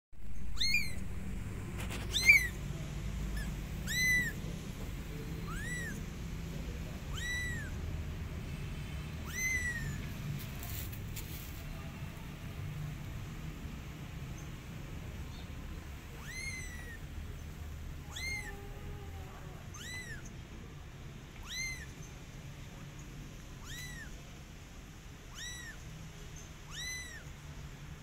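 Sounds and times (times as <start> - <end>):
kitten meowing: 0.5 - 1.1, 1.8 - 2.6, 3.3 - 4.5, 5.3 - 6.2, 6.9 - 7.9, 9.2 - 10.8, 16.1 - 17.1, 18.0 - 20.3, 21.4 - 22.0, 23.6 - 24.2, 25.2 - 25.8, 26.6 - 27.3.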